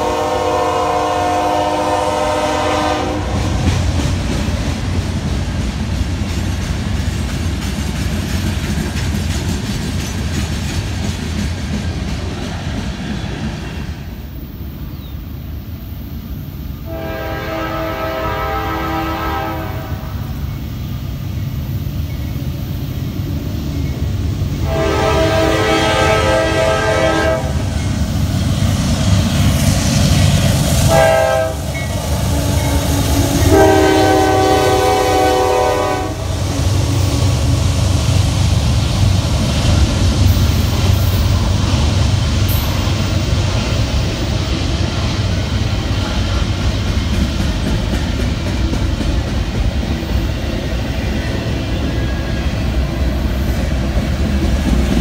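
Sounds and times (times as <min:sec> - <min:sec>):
locomotive air horn blasts: 0:00.0 - 0:03.6, 0:16.8 - 0:20.3, 0:24.6 - 0:27.7, 0:30.9 - 0:36.3
train rumble and wheel clatter: 0:00.0 - 0:55.0.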